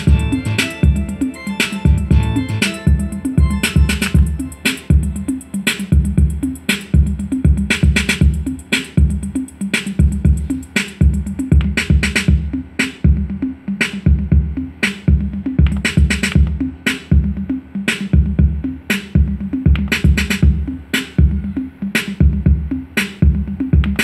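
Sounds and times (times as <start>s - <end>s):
kick drum: 0.0s - 1.2s, 1.8s - 5.3s, 5.9s - 9.4s, 10.0s - 13.4s, 14.0s - 17.5s, 18.1s - 24.0s
synth bass: 0.0s - 5.4s
snare and clap hits: 3.6s - 4.8s, 23.8s - 24.0s.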